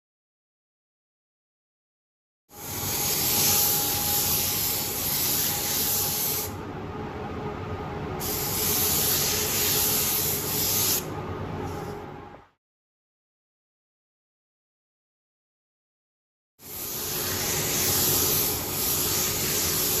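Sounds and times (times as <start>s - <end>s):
paint spray gun hissing: 2.6s - 6.6s, 8.2s - 11.0s, 16.7s - 20.0s.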